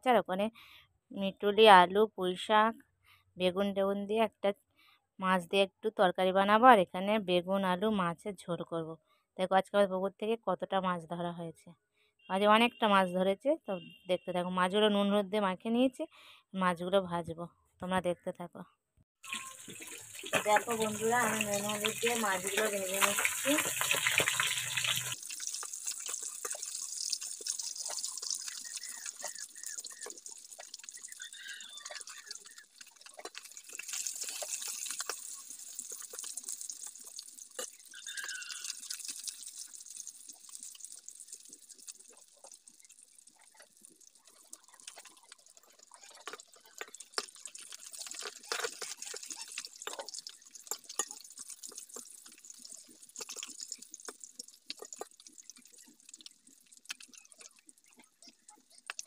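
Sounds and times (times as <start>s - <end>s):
fish sizzling in hot oil: 19.2s - 59.0s.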